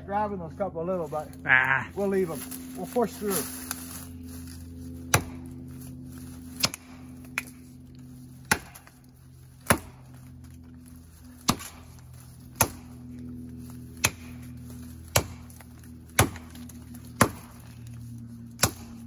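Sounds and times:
axe chopping wood: 0:05.1 - 0:05.6, 0:06.5 - 0:07.6, 0:08.4 - 0:09.0, 0:09.6 - 0:10.2, 0:11.4 - 0:13.1, 0:14.0 - 0:17.7, 0:18.5 - 0:19.0.

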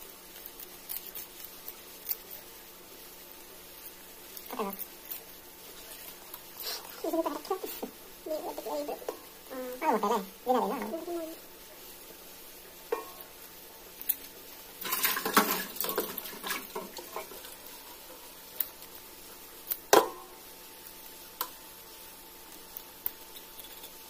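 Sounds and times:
water splashing in a metal bowl: 0:14.8 - 0:17.9.

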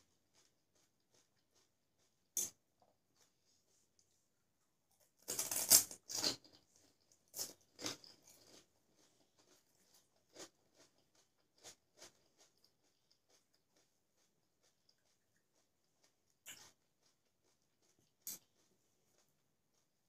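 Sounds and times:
crisp shells crunching when chewed: 0:05.2 - 0:15.2.

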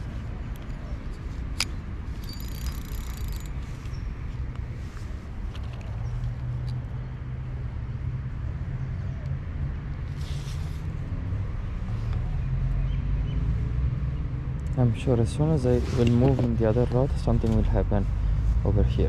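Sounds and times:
short rustle: 0:10.1 - 0:10.9.

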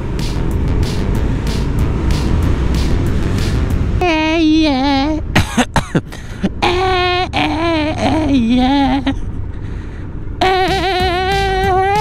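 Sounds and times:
motorcycle engine: 0:00.0 - 0:05.4
man singing wordless tune: 0:10.4 - 0:12.0.

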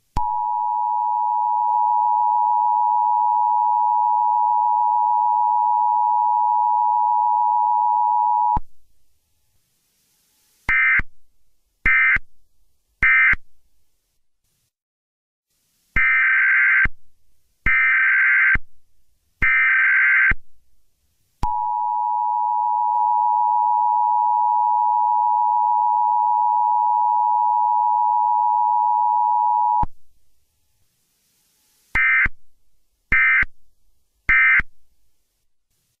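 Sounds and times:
long steady electronic tone: 0:00.2 - 0:08.6, 0:21.4 - 0:29.8.

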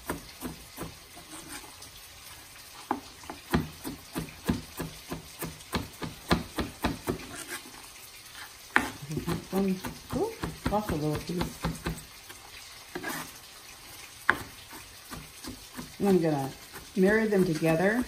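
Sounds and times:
knife chopping on cutting board: 0:03.0 - 0:07.6, 0:08.7 - 0:12.4, 0:14.2 - 0:18.0.

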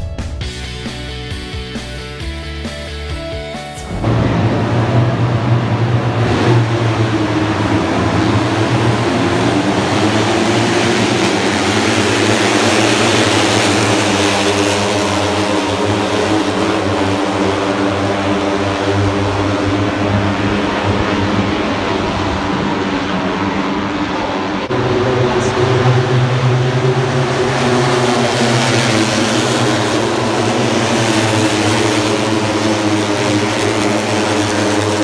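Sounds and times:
music: 0:00.0 - 0:04.8
racing motorcycle engines droning: 0:00.0 - 0:35.0.

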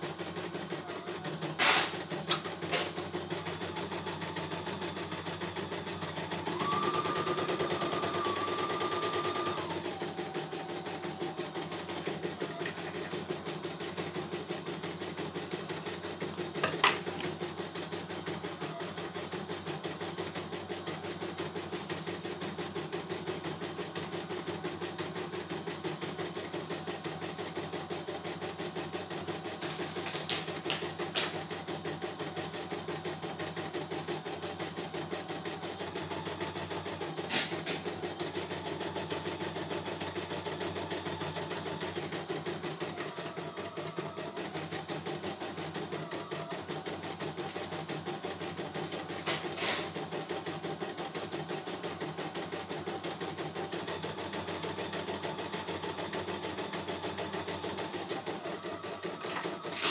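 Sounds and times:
embroidery machine stitching: 0:00.0 - 0:59.9
machine whine: 0:54.2 - 0:59.9.

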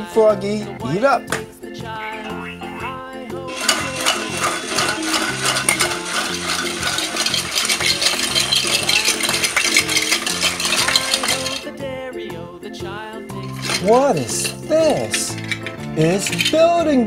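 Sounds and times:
background music: 0:00.0 - 0:17.0
plastic pieces rattling: 0:03.5 - 0:11.8, 0:13.3 - 0:16.9.

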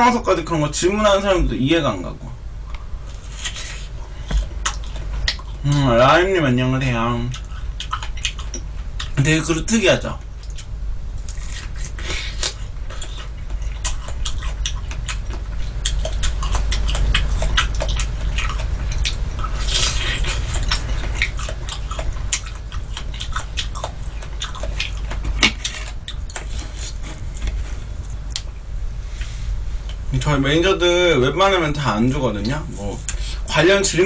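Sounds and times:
low hum: 0:00.0 - 0:34.0
person chewing and smacking: 0:02.7 - 0:06.0, 0:07.0 - 0:09.2, 0:10.2 - 0:28.6.

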